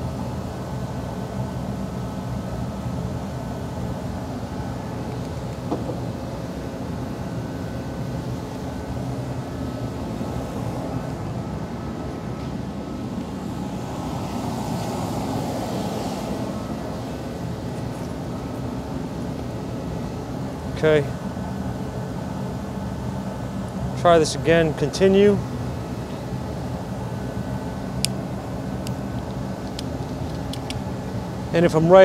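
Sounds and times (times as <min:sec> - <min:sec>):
machinery hum: 0:00.0 - 0:32.0.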